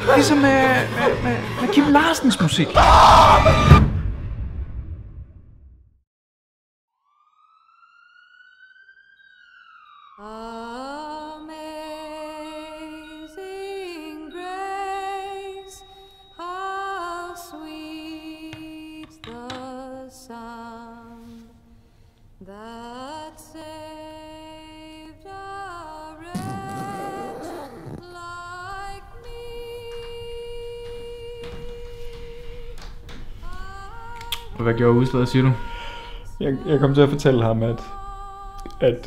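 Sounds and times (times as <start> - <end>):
person humming long notes: 26.3 - 28.2.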